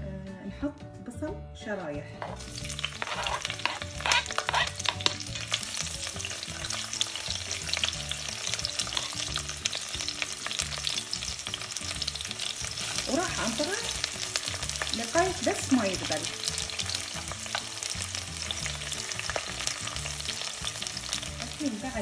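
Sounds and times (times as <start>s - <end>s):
spoon stirring in a pot: 2.2s - 9.8s
onions sizzling in hot oil: 2.2s - 22.0s.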